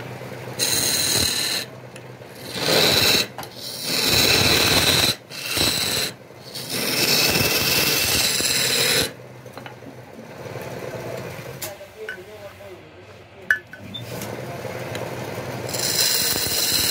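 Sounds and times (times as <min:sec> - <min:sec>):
lathe running: 0:00.3 - 0:11.6, 0:14.0 - 0:16.9
steel tool scraping wood: 0:00.6 - 0:01.7, 0:02.4 - 0:09.2, 0:15.7 - 0:16.9.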